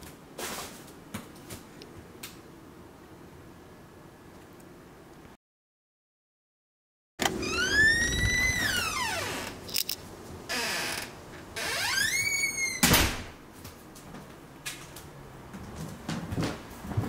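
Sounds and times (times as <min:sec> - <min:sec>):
wooden stair creaking: 0:10.5 - 0:12.8.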